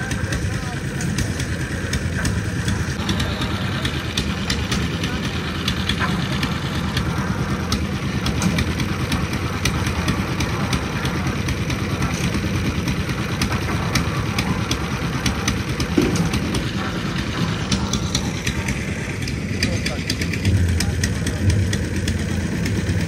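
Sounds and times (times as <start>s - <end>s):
engine running steadily: 0.0s - 23.0s
sharp clicks and knocks: 13.2s - 23.0s.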